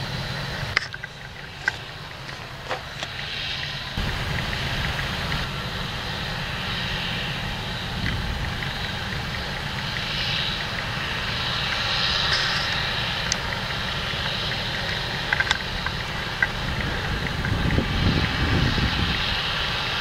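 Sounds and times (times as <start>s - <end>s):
combine harvester droning: 0.0s - 20.0s
sharp ticks: 0.7s - 5.6s, 7.8s - 18.4s.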